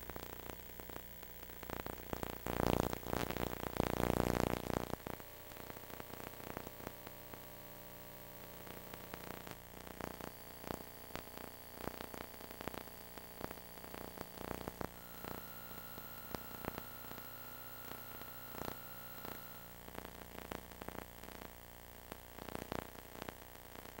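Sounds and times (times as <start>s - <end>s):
tape hiss and hum: 0.0s - 24.0s.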